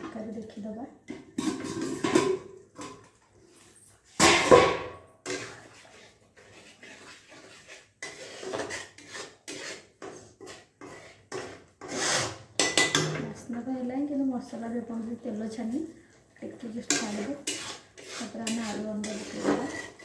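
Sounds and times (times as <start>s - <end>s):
metal spatula scraping pan: 1.2s - 3.1s, 5.2s - 13.3s, 16.4s - 20.0s.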